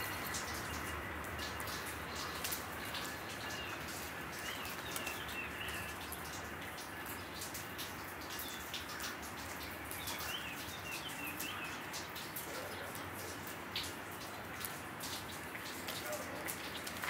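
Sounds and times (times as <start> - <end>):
birds chirping: 0.0 - 7.6, 8.2 - 13.0.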